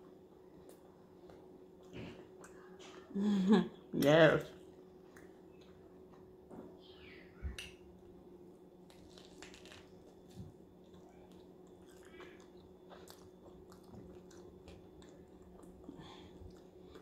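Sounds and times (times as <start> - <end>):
low steady hum: 0.0 - 17.0
person chewing lettuce: 8.8 - 17.0.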